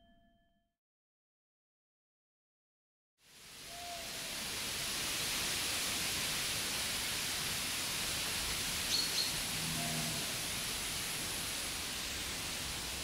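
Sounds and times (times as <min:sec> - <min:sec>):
steady woodland hiss: 0:03.2 - 0:13.0.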